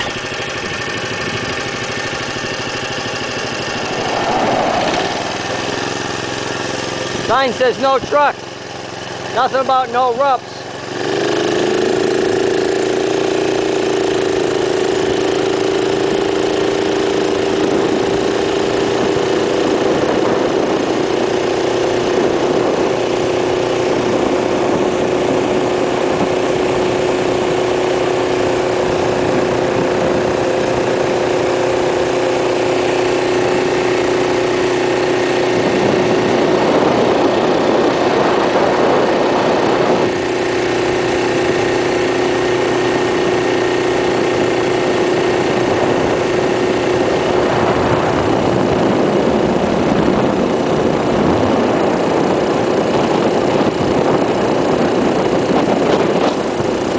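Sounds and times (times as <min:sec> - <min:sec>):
minibike engine running: 0:00.0 - 0:56.9
rushing noise: 0:03.1 - 0:07.7.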